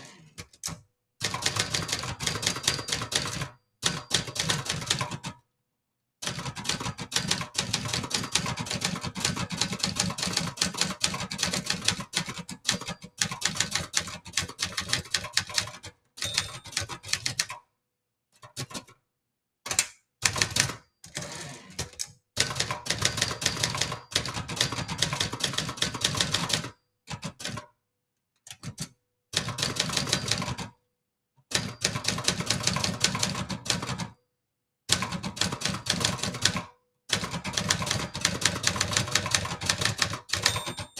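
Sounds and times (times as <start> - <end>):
typewriter keystrokes clattering: 6.6 - 17.6, 35.0 - 40.9
typewriter carriage return: 16.2 - 17.5, 37.2 - 40.9.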